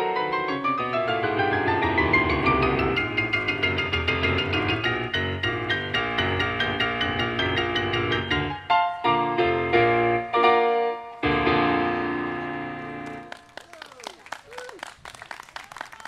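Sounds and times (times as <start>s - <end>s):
piano piece: 0.0s - 13.6s
applause: 13.0s - 16.0s.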